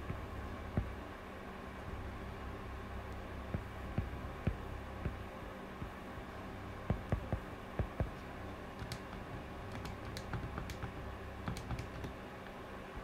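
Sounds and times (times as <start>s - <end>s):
faint steady hum: 0.0s - 13.0s
stylus tapping on tablet screen: 6.8s - 8.2s, 8.8s - 12.2s.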